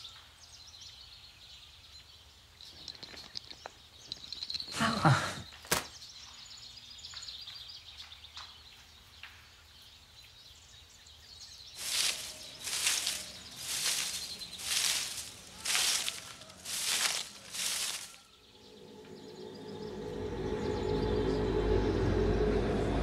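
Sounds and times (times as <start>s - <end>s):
faint bird chirps: 10.4s - 21.6s.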